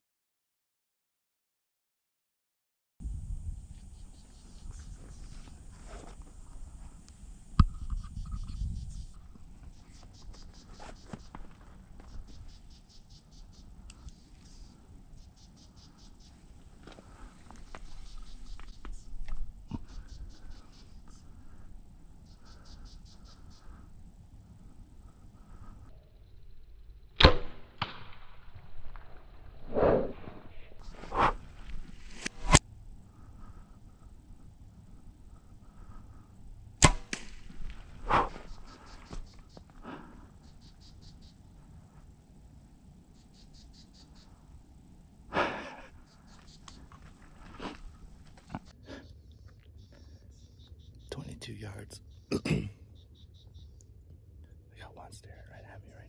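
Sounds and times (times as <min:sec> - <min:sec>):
small animal high chirping trills: 0:22.2 - 0:23.7, 0:40.4 - 0:41.4, 0:43.2 - 0:44.4, 0:52.9 - 0:53.8
bowstring release crack: 0:32.0 - 0:32.6, 0:36.8 - 0:38.5.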